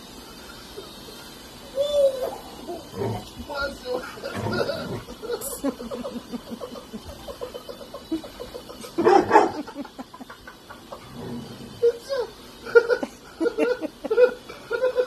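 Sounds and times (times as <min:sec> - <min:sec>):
dog barking: 0:09.0 - 0:09.6.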